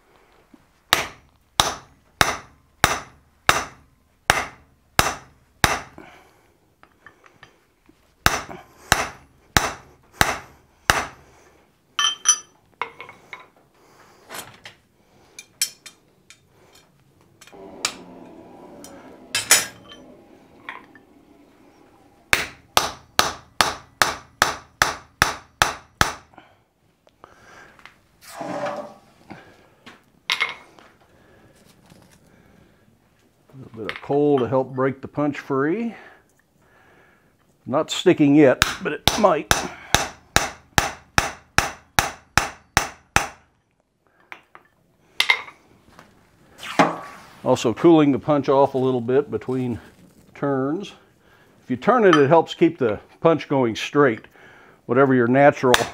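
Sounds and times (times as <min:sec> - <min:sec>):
hammer striking hot metal: 0:00.9 - 0:06.0, 0:08.3 - 0:11.2, 0:22.3 - 0:26.2, 0:38.6 - 0:43.4
metallic clinks and ringing: 0:12.0 - 0:13.2.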